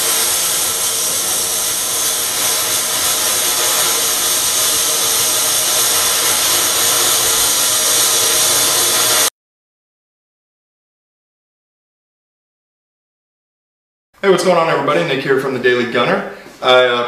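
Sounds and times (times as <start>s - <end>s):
laser beam hissing: 0.0s - 9.3s.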